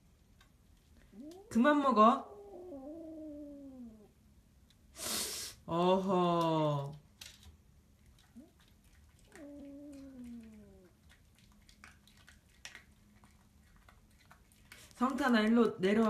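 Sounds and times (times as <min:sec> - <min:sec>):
cat meowing: 0:09.2 - 0:10.9.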